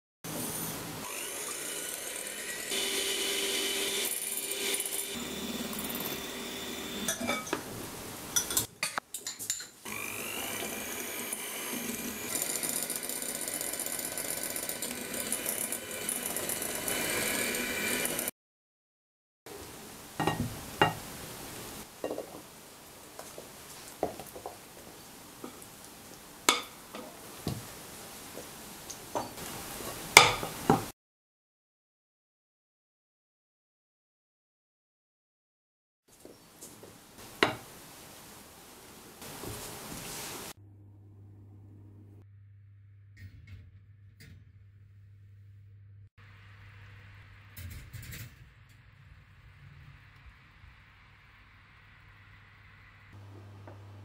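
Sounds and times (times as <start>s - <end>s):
electric hand mixer beating: 1.0s - 7.2s, 9.9s - 18.3s.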